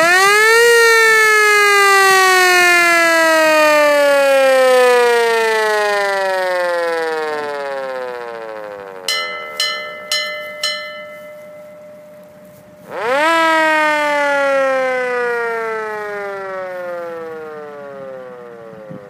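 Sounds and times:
mechanical siren wailing: 0:00.0 - 0:19.0
brass bell struck: 0:09.1 - 0:12.5.

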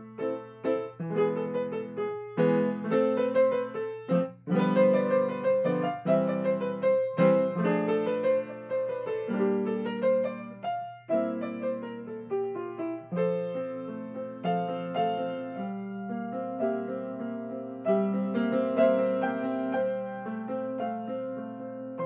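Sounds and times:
grand piano chords: 0:00.0 - 0:22.0.

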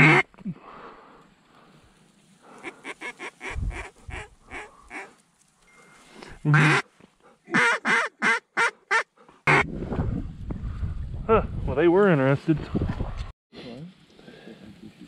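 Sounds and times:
duck call quacks: 0:00.0 - 0:00.2, 0:06.5 - 0:06.8, 0:07.5 - 0:09.6.

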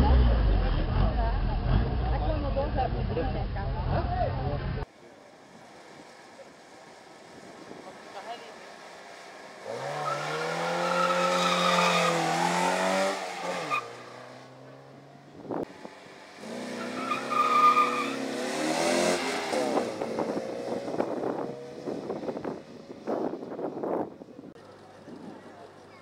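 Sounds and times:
rally car engine revving: 0:00.0 - 0:04.9, 0:07.9 - 0:25.3
tyres squealing: 0:09.7 - 0:14.2, 0:16.7 - 0:18.3.

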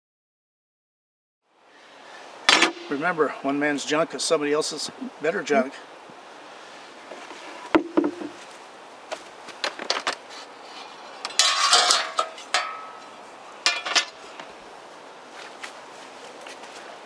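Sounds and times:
metal chainsaw parts clanking: 0:11.3 - 0:13.0, 0:13.7 - 0:14.2.

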